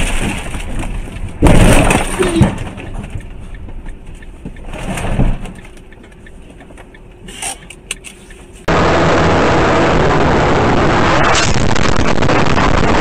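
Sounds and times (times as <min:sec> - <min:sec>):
vehicle crash impact: 0:00.0 - 0:03.2.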